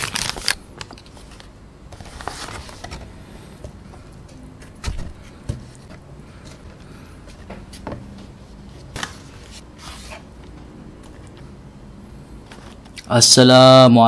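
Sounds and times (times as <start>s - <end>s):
paper wrapper crinkling: 0.0s - 3.0s.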